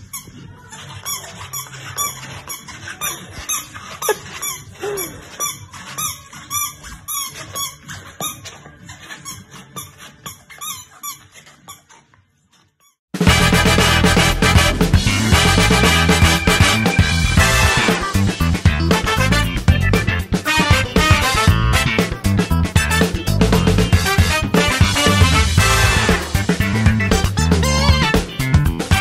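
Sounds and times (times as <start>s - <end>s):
rubber chicken toy squeaking: 0.0s - 13.0s, 27.0s - 29.0s
upbeat music: 13.2s - 29.0s.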